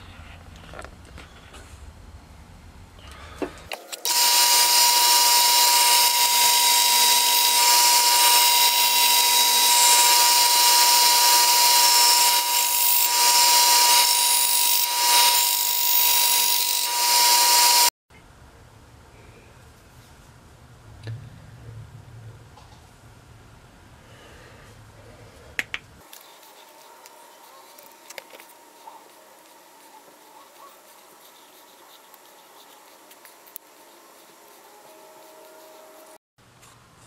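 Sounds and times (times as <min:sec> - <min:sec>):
belt sander whining: 0:04.0 - 0:17.9.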